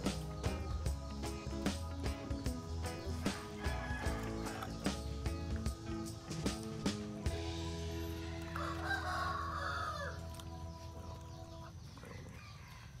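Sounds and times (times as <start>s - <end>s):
background music with held notes: 0.0s - 12.0s
rooster crowing: 3.6s - 4.8s, 8.4s - 10.2s.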